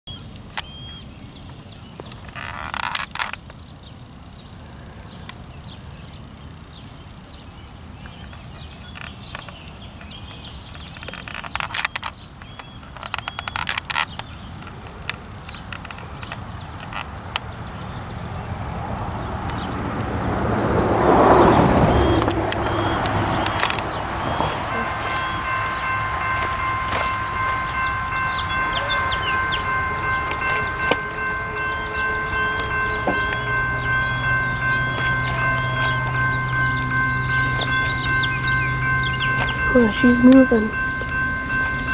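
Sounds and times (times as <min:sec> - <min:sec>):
small birds chirping: 0:00.1 - 0:19.9, 0:21.2 - 0:41.9
steady low rumble: 0:14.3 - 0:41.9
high whine of held tones: 0:21.8 - 0:41.9.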